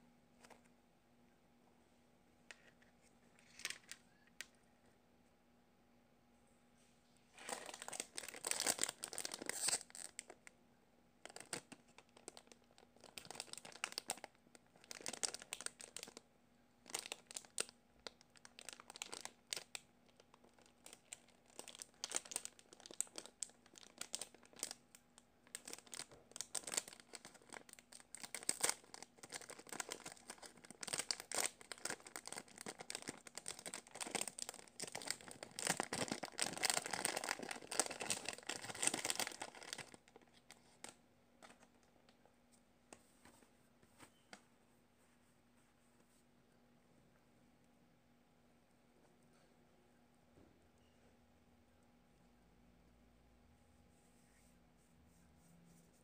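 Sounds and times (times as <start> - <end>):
plastic bag crinkling: 7.4 - 10.4, 11.2 - 16.2, 16.8 - 41.8.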